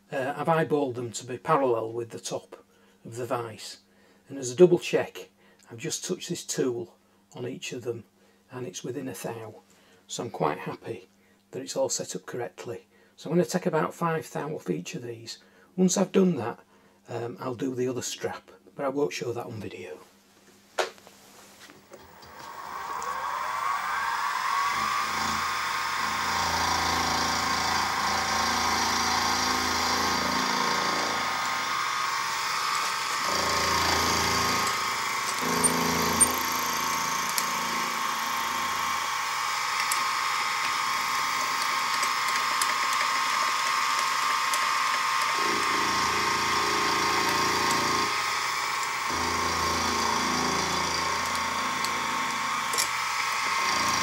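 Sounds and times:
end mill cutting metal: 22.0s - 54.0s
milling machine spindle whine: 22.0s - 54.0s.

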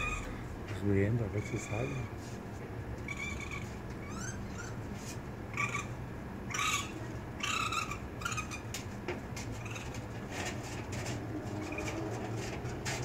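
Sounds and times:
baby raccoon crying: 0.0s - 0.5s, 1.3s - 2.2s, 3.0s - 4.9s, 5.5s - 8.8s, 9.5s - 10.2s, 11.5s - 12.0s.

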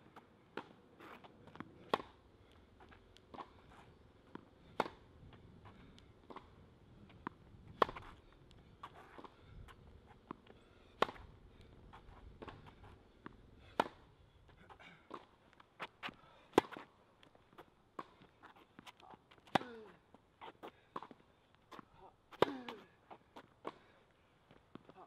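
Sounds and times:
tennis ball bouncing: 0.5s - 2.2s, 2.8s - 14.1s, 14.7s - 16.9s, 17.5s - 19.9s, 20.5s - 23.8s
tennis racket hitting ball: 1.8s - 2.2s, 4.3s - 5.0s, 7.2s - 8.2s, 11.0s - 11.3s, 13.7s - 14.1s, 22.4s - 22.9s.

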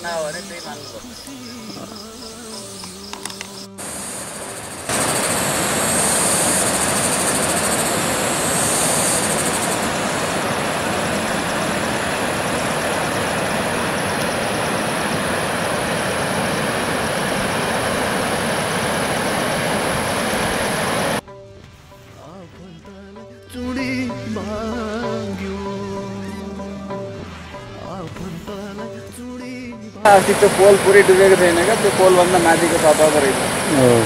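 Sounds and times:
high hiss: 0.0s - 21.2s, 30.1s - 34.0s.

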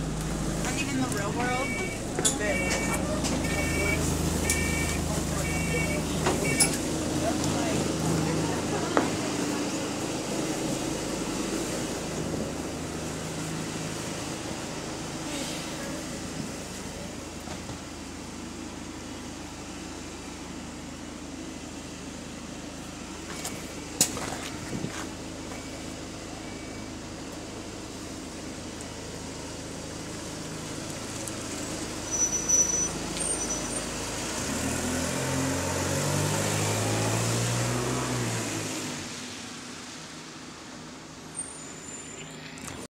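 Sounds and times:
bus engine idling: 0.0s - 34.5s, 38.8s - 42.9s
bus pulling away: 0.0s - 42.9s
clunks: 0.1s - 6.9s
short high beeps: 1.4s - 6.8s.

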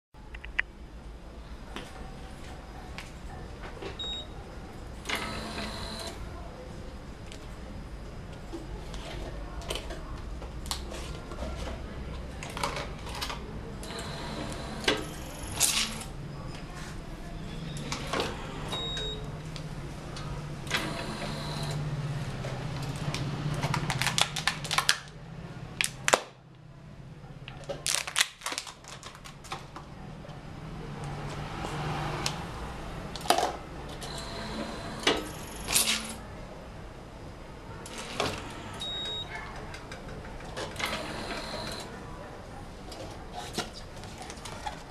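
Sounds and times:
electric motor hum: 5.1s - 6.2s.

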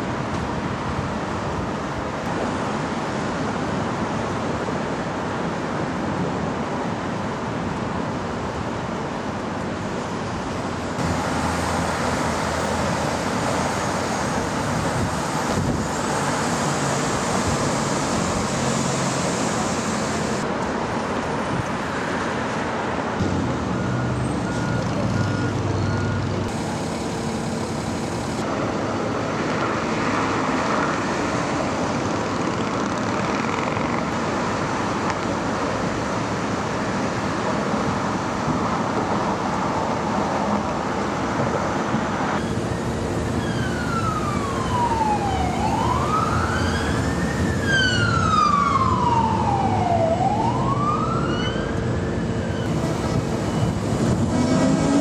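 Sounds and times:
city traffic noise: 0.0s - 55.0s
emergency vehicle siren wailing: 23.3s - 28.5s, 42.4s - 55.0s.

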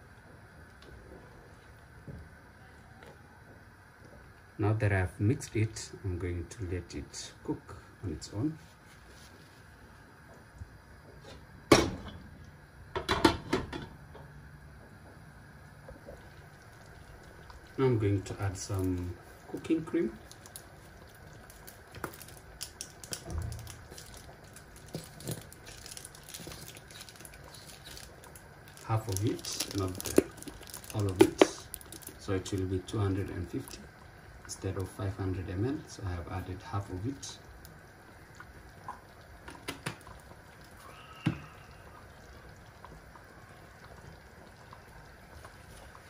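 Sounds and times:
cream pouring into a pot: 16.0s - 46.0s
sauce popping and clicking: 20.2s - 32.2s.

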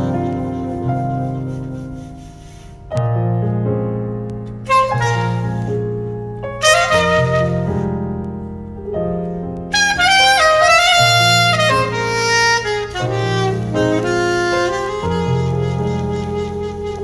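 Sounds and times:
soprano saxophone melody: 0.0s - 2.8s, 4.6s - 8.3s, 9.7s - 17.0s
sustained low backing chords: 0.0s - 17.0s.

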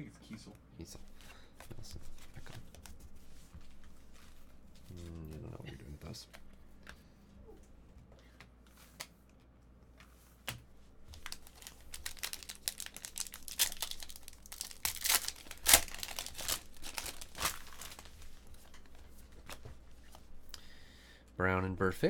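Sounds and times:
foil wrapper tearing and crinkling: 11.1s - 18.8s.

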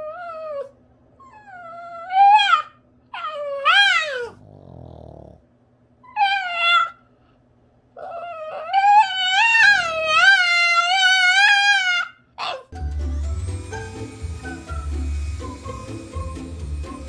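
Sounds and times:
dog howling: 1.4s - 4.4s, 8.0s - 12.7s
dog grumbling low: 4.3s - 5.4s.

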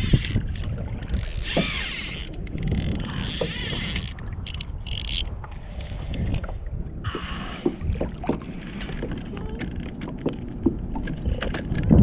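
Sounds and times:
fishing reel gears whirring: 0.0s - 5.3s
low wind: 0.0s - 12.0s
water noise: 0.0s - 12.0s.

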